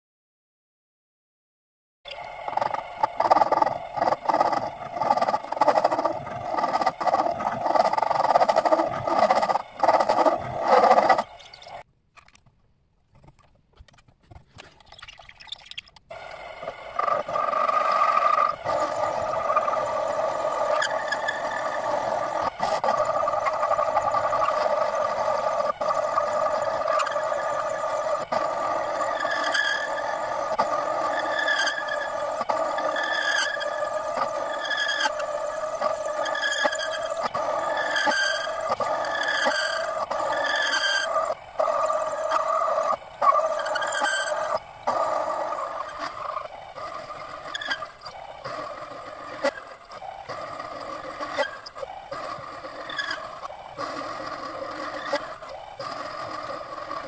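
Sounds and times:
lathe motor humming: 2.2s - 11.8s, 16.1s - 57.0s
irregular scraping with clicks: 2.2s - 15.0s
lathe tool cutting metal: 2.3s - 11.8s, 16.3s - 57.0s.

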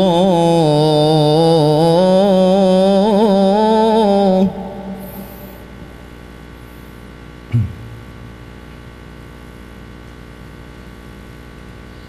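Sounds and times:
electrical hum: 0.0s - 12.0s
low thump with downward sweep: 7.5s - 8.7s.

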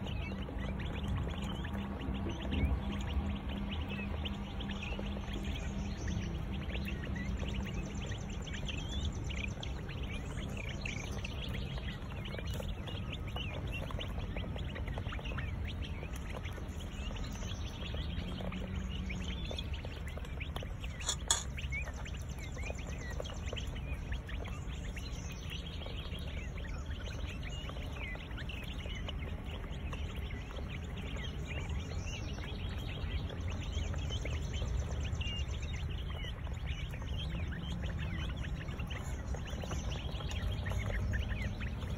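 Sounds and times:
quail chicks peeping and chirping: 0.0s - 41.9s
sharp click: 21.0s - 21.5s.

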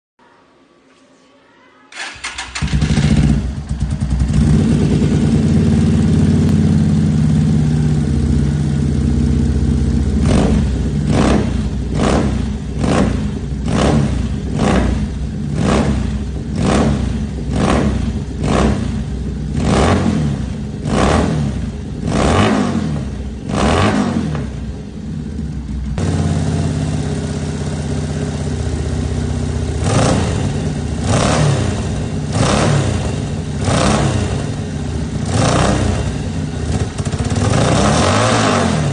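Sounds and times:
motorcycle starting and idling: 1.9s - 38.9s
motorcycle revving: 2.0s - 38.9s.

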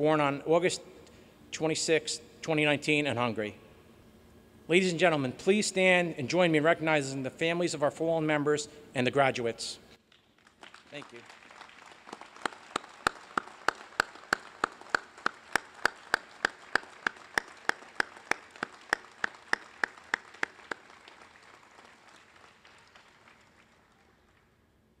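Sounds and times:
loud evenly spaced claps: 10.0s - 24.5s
crowd applauding: 10.1s - 24.6s.

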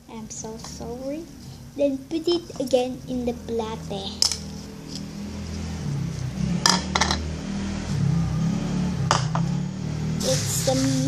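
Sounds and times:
low hum: 3.0s - 10.8s.

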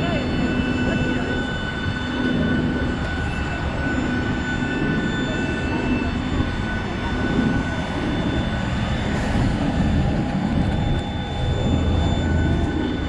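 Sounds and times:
aircraft engine rumble: 0.0s - 13.0s
thin high-pitched whines: 10.6s - 13.0s.

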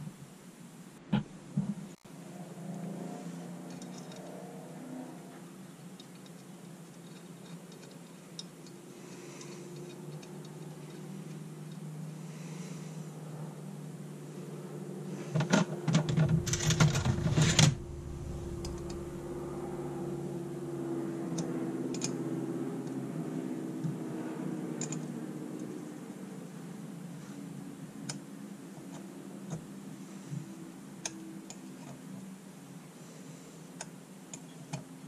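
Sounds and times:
metal parts clattering: 3.7s - 4.3s, 15.5s - 17.8s
steady low hum: 6.8s - 34.4s.

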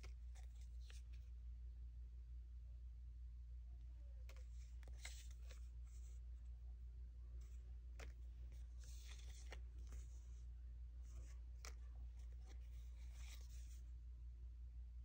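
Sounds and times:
stickers rustling: 4.3s - 6.3s, 7.3s - 10.4s, 11.0s - 13.8s.

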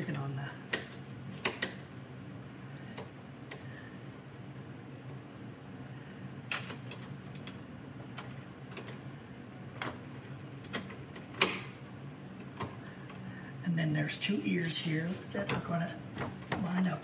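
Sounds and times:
steady low hum: 0.0s - 17.0s
plastic clicks and knocks: 10.6s - 11.7s.

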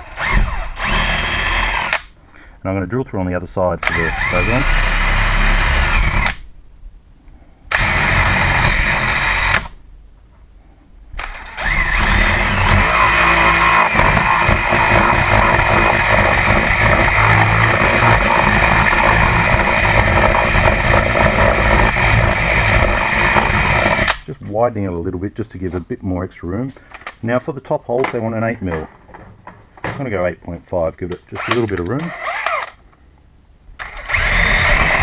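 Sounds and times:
power drill boring through door: 0.0s - 2.1s, 3.8s - 6.4s, 7.7s - 9.8s, 11.2s - 24.3s, 31.4s - 32.8s, 33.8s - 35.0s.

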